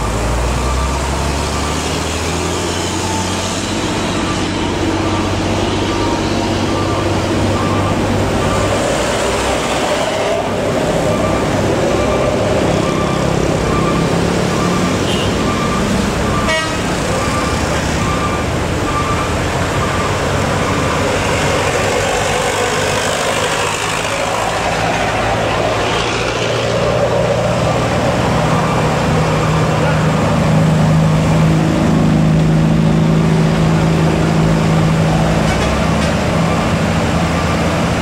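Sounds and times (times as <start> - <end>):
car and truck engines running: 0.0 - 38.0
electronic warning beeper: 4.1 - 21.2.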